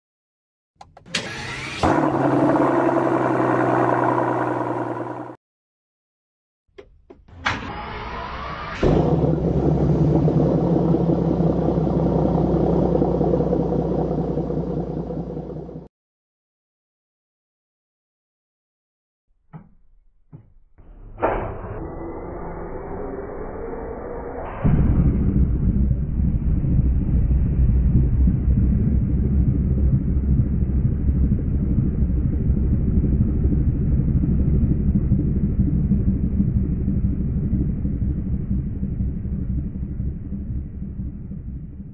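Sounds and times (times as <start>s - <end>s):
slowed-down car engine running: 0.8s - 5.4s, 6.8s - 15.9s, 19.6s - 41.9s
car engine idling: 0.9s - 5.4s, 9.4s - 15.9s.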